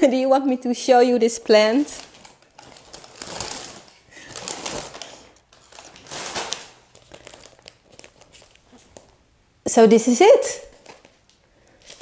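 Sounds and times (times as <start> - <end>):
paper rustling and crinkling: 1.5 - 9.2, 10.7 - 12.0.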